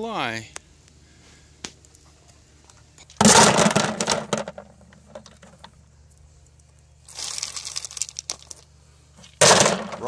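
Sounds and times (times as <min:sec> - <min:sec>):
stones clattering in plastic bucket: 0:03.2 - 0:05.6, 0:09.2 - 0:10.0.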